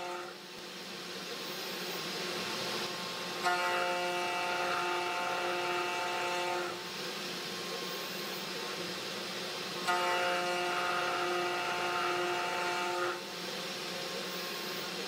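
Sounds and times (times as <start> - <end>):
router spindle humming: 2.8 - 8.9, 9.6 - 15.0.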